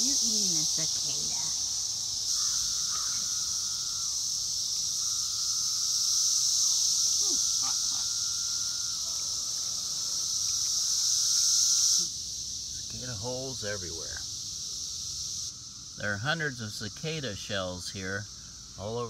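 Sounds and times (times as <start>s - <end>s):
short falling calls: 0.0s - 12.2s
cicadas droning: 0.0s - 19.0s.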